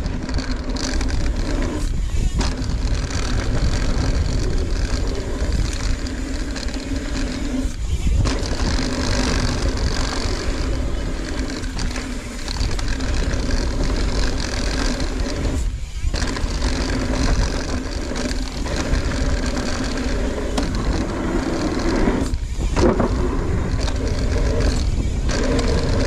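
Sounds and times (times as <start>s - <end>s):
bike tyres rolling on dirt: 0.0s - 26.0s
wind rushing over microphone: 0.0s - 26.0s.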